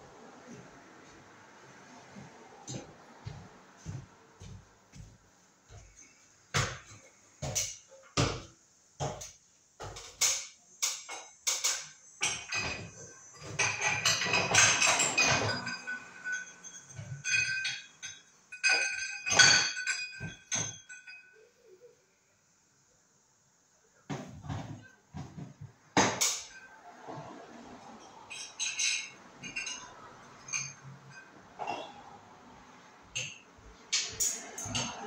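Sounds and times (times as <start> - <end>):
tools knocking and tapping: 2.6 - 21.4, 24.1 - 27.2, 27.8 - 32.2, 33.0 - 35.0
metal parts clattering and clinking: 10.1 - 21.4, 28.0 - 31.4.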